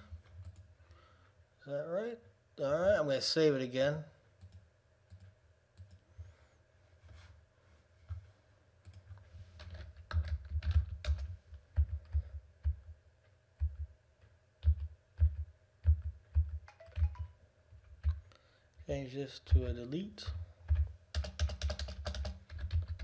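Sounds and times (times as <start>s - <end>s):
typing on computer keyboard: 0.3s - 0.7s, 8.8s - 12.9s, 13.6s - 13.9s, 14.6s - 18.2s, 20.7s - 23.0s.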